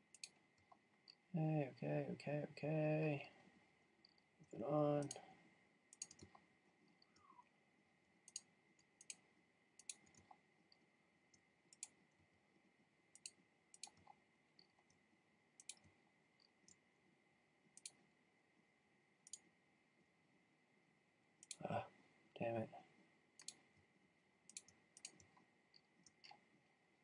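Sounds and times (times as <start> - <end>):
computer mouse clicks: 0.1 - 1.2, 5.9 - 7.4, 8.2 - 9.2, 9.8 - 12.2, 13.1 - 15.0, 15.6 - 16.8, 17.7 - 18.0, 19.2 - 19.5, 21.4 - 21.6, 23.4 - 23.8, 24.5 - 26.4.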